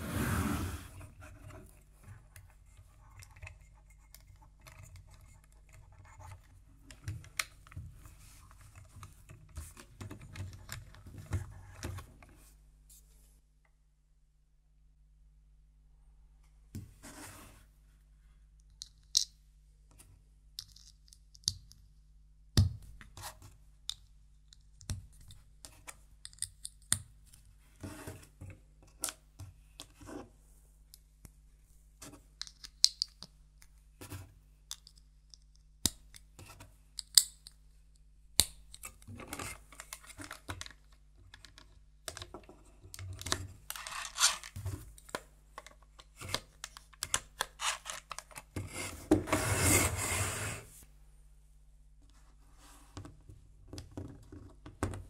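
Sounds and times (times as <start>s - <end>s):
plastic parts clicking together: 23.9s - 27.1s, 32.4s - 33.7s, 34.7s - 36.3s, 37.0s - 37.6s, 38.4s - 48.6s.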